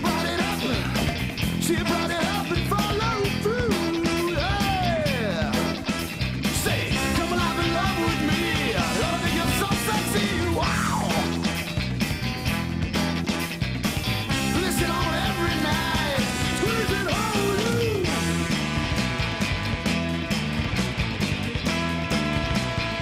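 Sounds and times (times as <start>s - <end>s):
rock music: 0.0s - 23.0s.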